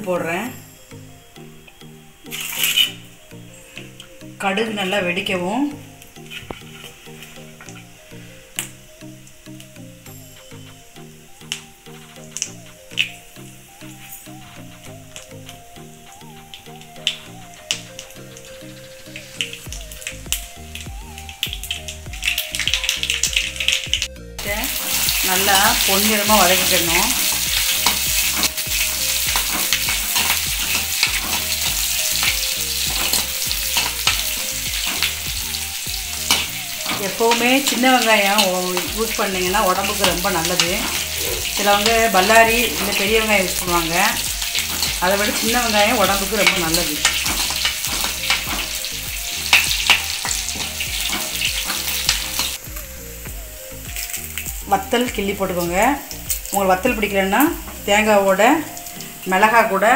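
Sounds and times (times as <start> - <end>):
onions sizzling in oil: 0.0 - 59.9
metal spatula scraping pan: 2.3 - 3.0
spatula scraping a pan: 2.3 - 3.0, 6.2 - 8.3
metal clicking on a pan: 26.9 - 35.4, 36.0 - 39.2, 43.8 - 52.6.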